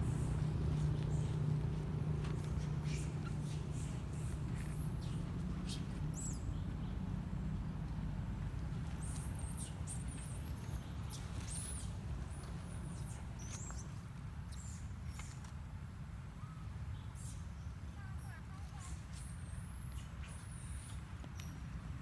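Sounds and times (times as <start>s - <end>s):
steady low rumble: 0.0s - 13.4s.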